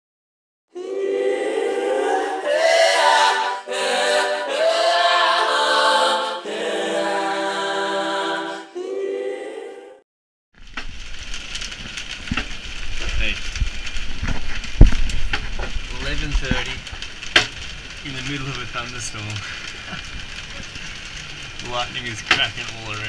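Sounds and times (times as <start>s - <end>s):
a cappella vocal harmony: 0.7s - 10.0s
noisy rush with low rumble: 10.6s - 23.0s.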